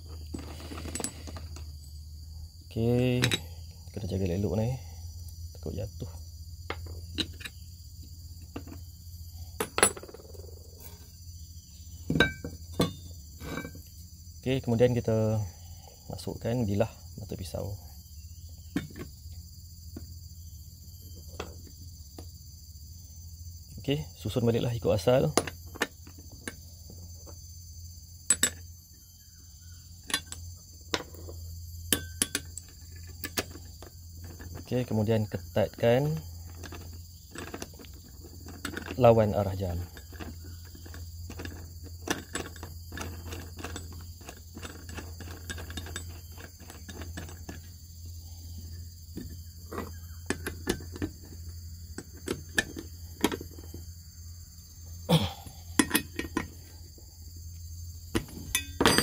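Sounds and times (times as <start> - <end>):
insects chirring: 0.0 - 59.0
metal parts clinking on wood: 0.1 - 1.9, 3.0 - 3.7, 6.7 - 7.7, 8.4 - 11.1, 12.0 - 14.1, 25.0 - 27.4, 28.2 - 28.8, 29.9 - 47.8, 48.6 - 53.9, 55.6 - 56.8, 58.1 - 59.0.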